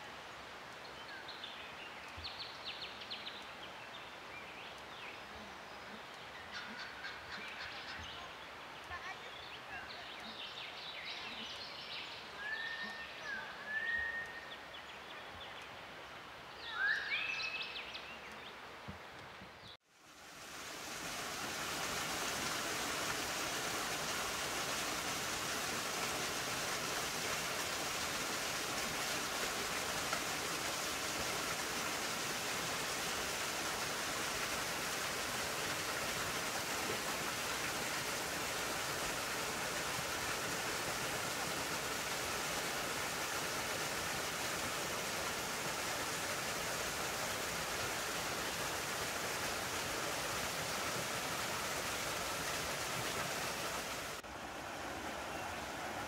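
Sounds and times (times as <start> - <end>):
water rushing over cascades: 19.9 - 56.0.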